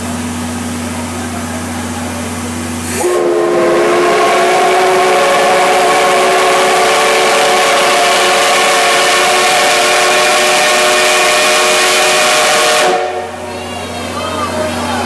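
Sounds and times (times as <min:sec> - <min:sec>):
steam locomotive whistle: 0:02.8 - 0:14.1.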